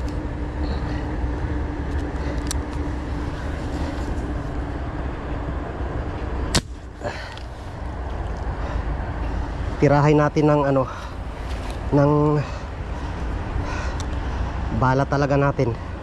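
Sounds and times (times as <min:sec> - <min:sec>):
low rumble with faint hum: 0:00.0 - 0:16.0
fishing gun firing crack: 0:06.5 - 0:06.8.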